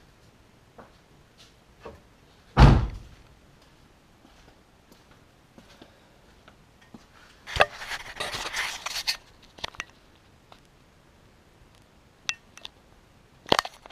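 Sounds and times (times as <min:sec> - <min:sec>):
rustling and scraping: 0:06.9 - 0:10.6.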